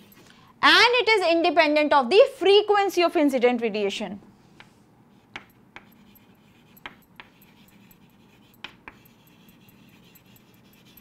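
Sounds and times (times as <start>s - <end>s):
chalk tapping on chalkboard: 4.6s - 11.0s.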